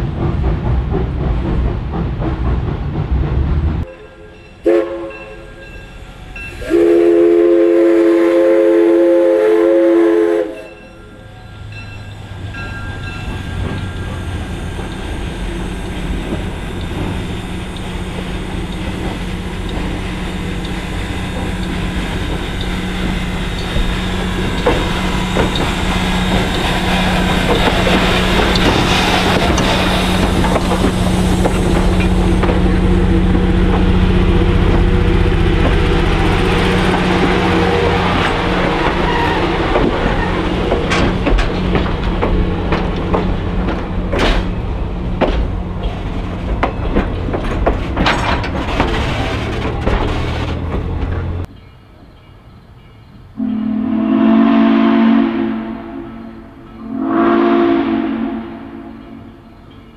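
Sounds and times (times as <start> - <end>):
steam locomotive passing: 0.0 - 59.9
wheels clicking on rail joints: 10.6 - 53.2.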